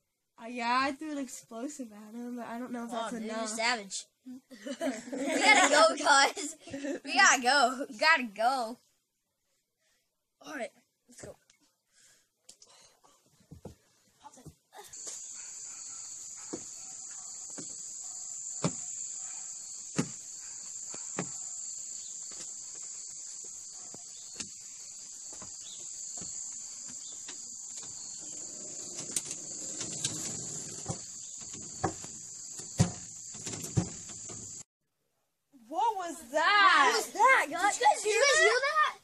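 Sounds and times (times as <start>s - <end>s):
insects chorus: 14.9s - 34.6s.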